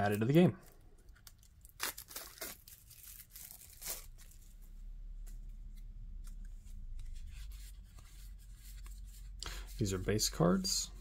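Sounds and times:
wrapper tearing and crinkling: 0:00.0 - 0:04.6.

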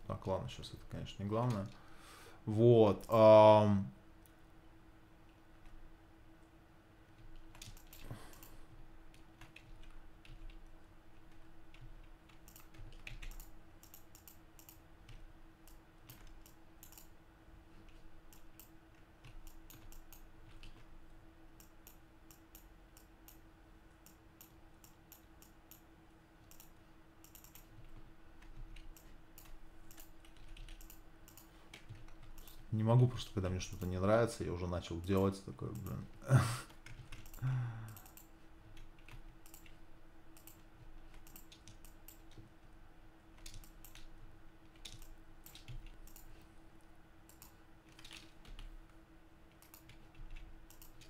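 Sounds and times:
steady low hum: 0:00.0 - 0:51.0
keyboard and mouse clicking: 0:07.2 - 0:17.1, 0:17.8 - 0:20.9, 0:21.6 - 0:23.4, 0:26.4 - 0:32.7, 0:35.7 - 0:36.0, 0:36.8 - 0:42.5, 0:43.4 - 0:46.4, 0:47.2 - 0:48.7, 0:49.5 - 0:51.0.

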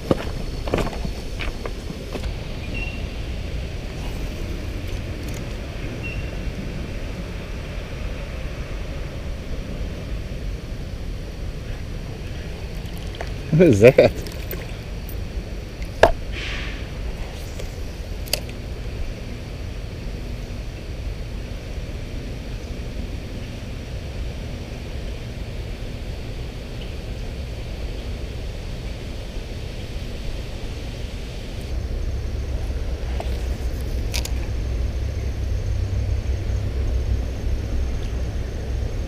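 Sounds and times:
river water running over rocks: 0:11.1 - 0:16.3.

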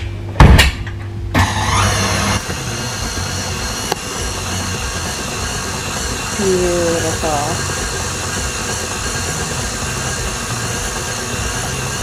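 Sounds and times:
loud thump: 0:00.4 - 0:01.5
stand mixer running: 0:01.4 - 0:12.0.

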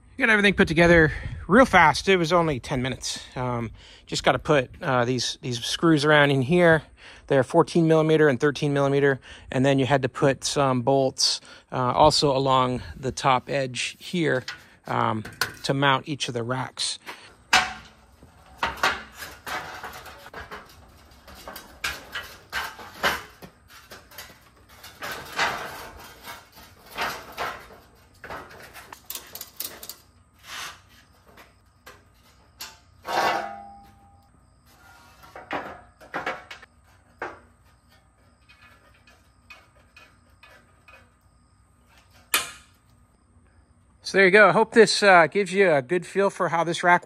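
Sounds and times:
metallic clanks and rattles: 0:14.2 - 0:16.0, 0:17.1 - 0:30.2, 0:30.8 - 0:42.9.

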